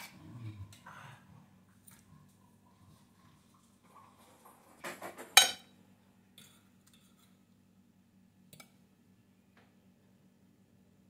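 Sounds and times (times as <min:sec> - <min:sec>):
cutlery clinking on crockery: 0:04.8 - 0:05.7.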